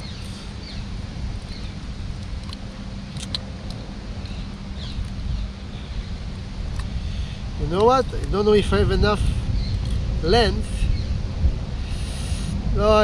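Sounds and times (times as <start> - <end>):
motor droning: 0.0 - 13.0.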